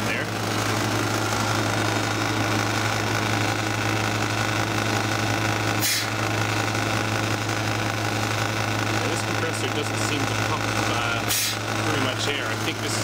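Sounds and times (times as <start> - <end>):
compressor hum: 0.0 - 13.0.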